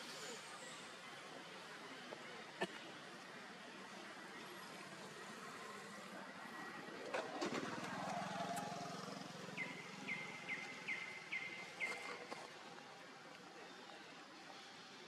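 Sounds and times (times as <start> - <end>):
bird chirping: 9.6 - 12.1.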